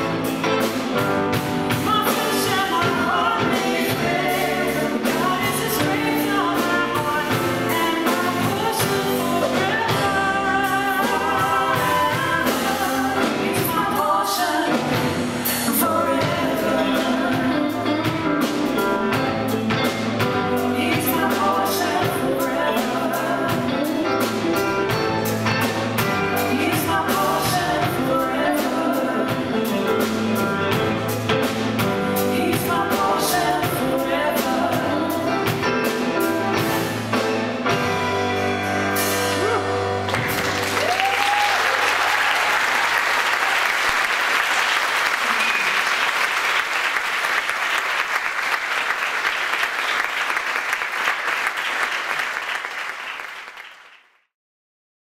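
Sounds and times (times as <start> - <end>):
live band playing: 0.0 - 53.6
audience applauding: 39.4 - 54.2
person whooping: 40.8 - 42.9.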